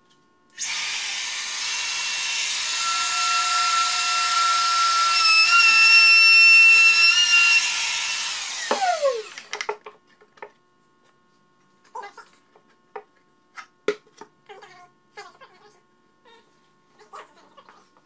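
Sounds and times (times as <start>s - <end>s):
router motor spinning down: 0.6s - 9.6s
router whining cutting wood: 0.6s - 9.6s.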